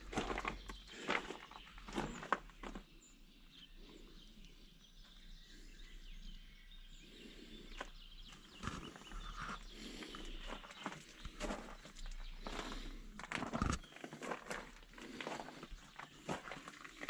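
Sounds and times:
footsteps on gravel: 0.0s - 2.9s, 7.8s - 17.0s.

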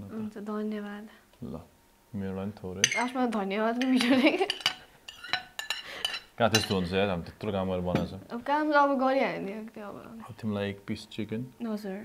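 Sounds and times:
woman talking: 0.0s - 1.1s, 3.0s - 4.5s, 8.3s - 10.2s, 11.6s - 12.0s
spoons clinking on ceramic plates: 2.8s - 3.2s, 3.8s - 7.0s.

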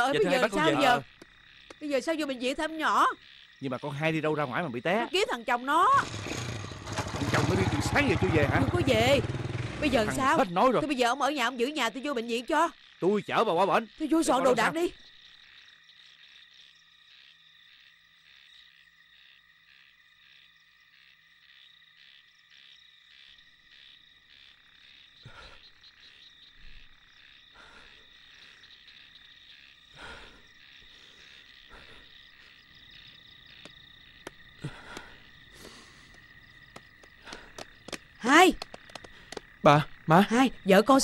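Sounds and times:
frogs and crickets chirring: 0.0s - 41.0s.

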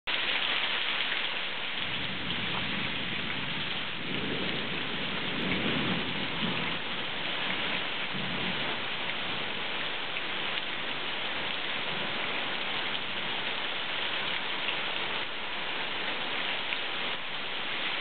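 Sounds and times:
heavy rain on grass and gravel: 0.0s - 18.0s
low rumble of thunder: 1.7s - 13.6s.

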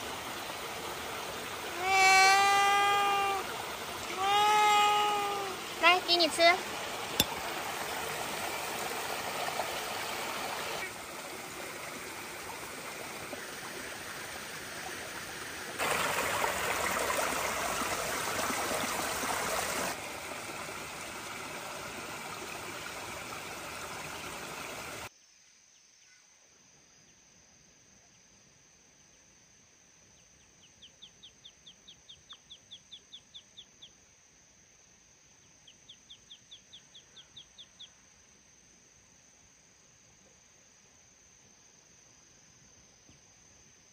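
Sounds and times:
small stream running: 0.0s - 25.1s.

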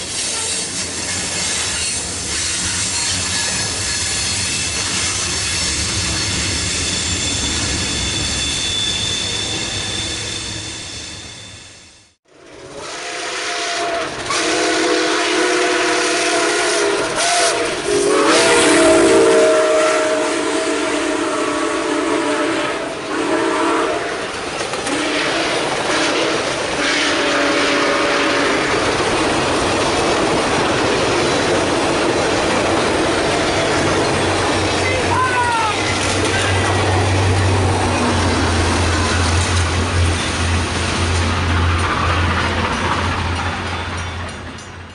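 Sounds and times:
train wheels clacking on rails: 0.0s - 9.4s, 22.8s - 44.9s
train horn: 12.6s - 28.9s.

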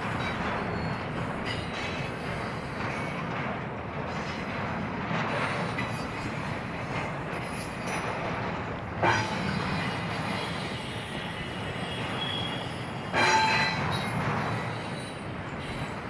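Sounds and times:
freight train rumbling past: 0.0s - 16.0s
wheel squeal: 9.1s - 15.9s.

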